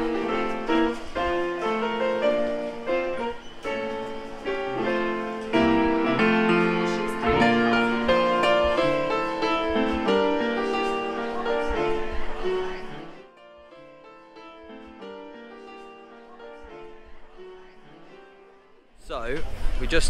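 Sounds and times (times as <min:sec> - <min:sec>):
ragtime piano: 0:00.0 - 0:18.4.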